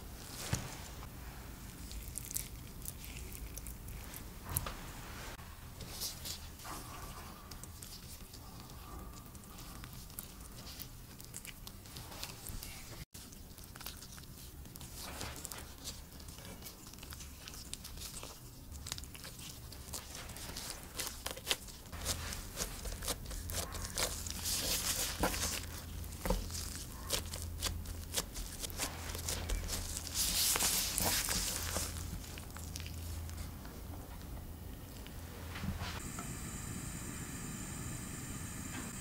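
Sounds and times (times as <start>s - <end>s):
clicks and crackles of dough and glove: 0.0s - 4.7s, 5.8s - 35.2s
sticky dough squishing: 1.6s - 4.6s, 5.8s - 33.7s.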